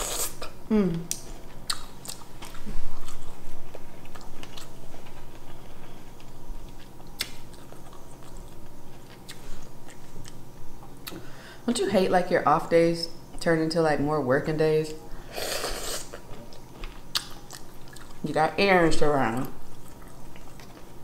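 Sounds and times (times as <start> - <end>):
person chewing: 0.0 - 11.2, 15.4 - 18.2, 19.7 - 21.0.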